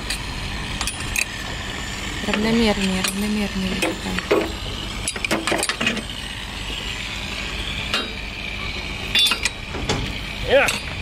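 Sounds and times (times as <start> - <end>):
metal clinks of spanner: 2.8 - 6.0, 9.0 - 10.0, 10.6 - 11.0.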